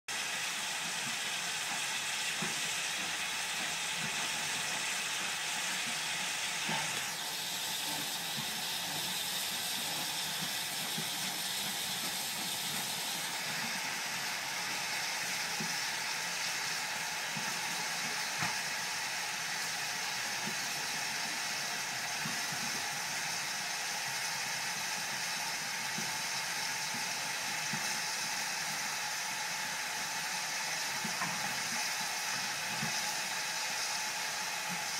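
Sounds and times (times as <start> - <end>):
steam hissing from locomotives: 0.1 - 34.9.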